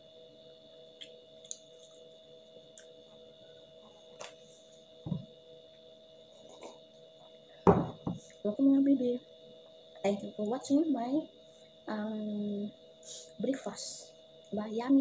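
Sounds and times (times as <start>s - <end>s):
high-pitched electrical whine: 0.0s - 15.0s
soft low thump: 5.1s - 5.3s, 7.7s - 8.2s.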